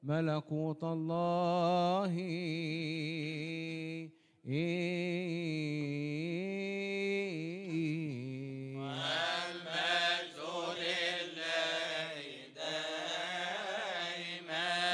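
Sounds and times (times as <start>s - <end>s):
man chanting: 0.0s - 9.8s
group of men chanting: 8.8s - 14.9s.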